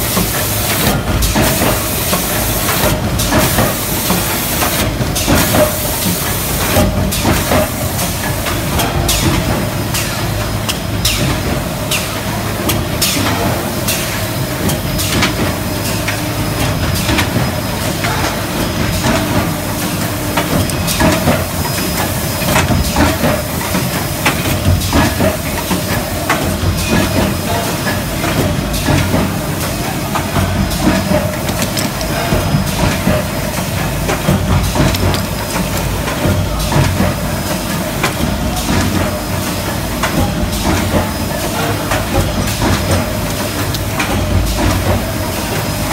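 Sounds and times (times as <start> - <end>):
machine hum and hiss: 0.0 - 45.9
metal parts clanking: 31.0 - 32.6, 34.6 - 35.9.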